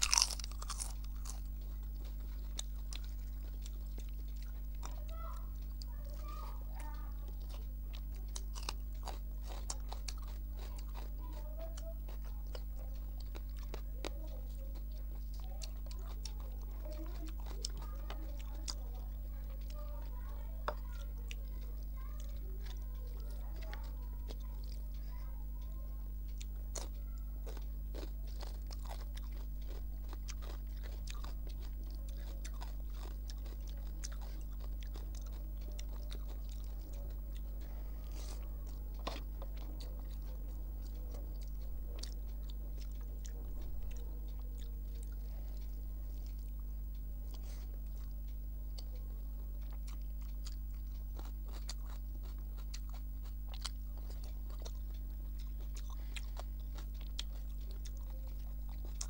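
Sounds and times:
person chewing food: 0.0s - 59.0s
low hum: 21.1s - 59.0s.

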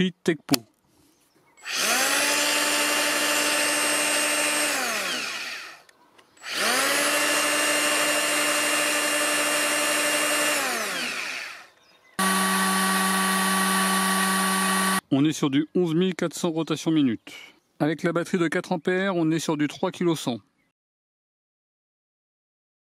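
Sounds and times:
electric planer motor whine: 1.7s - 5.8s, 6.4s - 15.0s.

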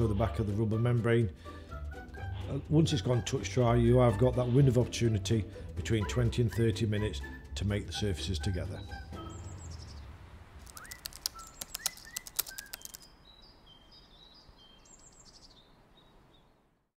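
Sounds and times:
birds chirping: 6.4s - 16.7s
sharp clicks: 10.6s - 13.1s.

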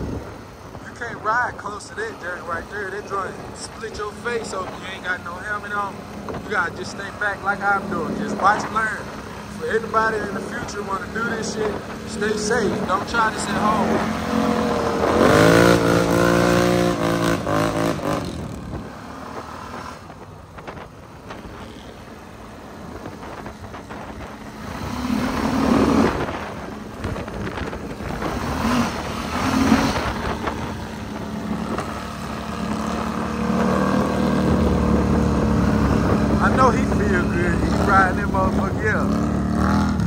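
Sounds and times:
atv engines revving: 0.0s - 40.0s.

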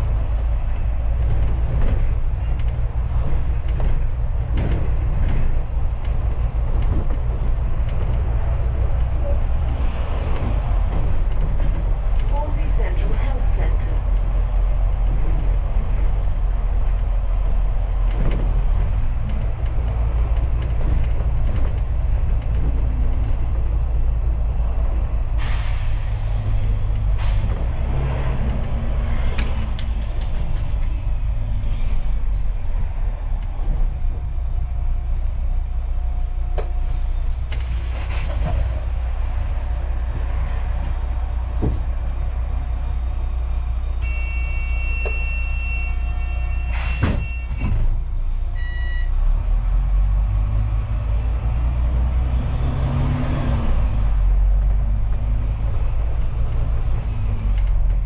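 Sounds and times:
bus engine and road rumble: 0.0s - 58.0s
knocks and rattles: 1.0s - 23.8s
air brakes hissing: 25.4s - 27.7s.

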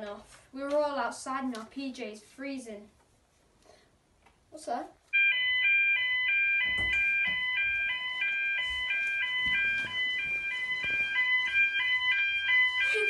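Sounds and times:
fire alarm two-tone warble: 5.2s - 13.0s.

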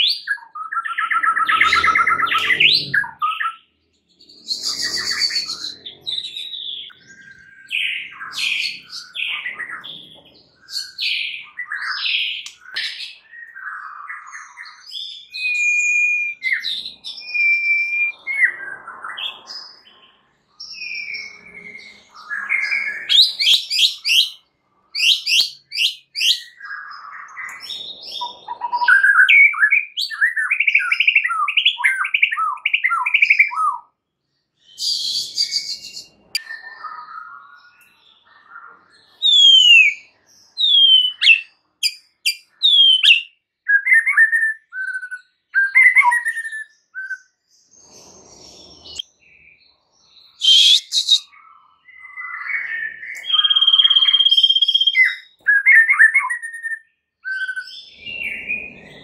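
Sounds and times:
bird singing varied whistles: 10.6s - 19.8s, 20.6s - 24.4s, 25.0s - 33.9s, 34.7s - 37.9s, 39.2s - 47.3s, 50.3s - 58.9s.

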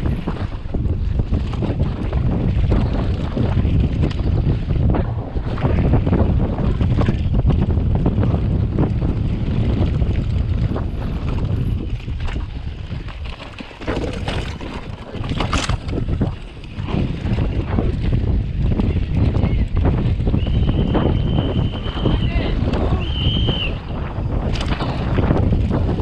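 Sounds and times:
bike rattling and knocking: 0.0s - 26.0s
bike tyre noise: 0.0s - 26.0s
wind buffeting microphone: 0.0s - 26.0s
sharp clatter: 13.3s - 18.2s, 24.4s - 26.0s.

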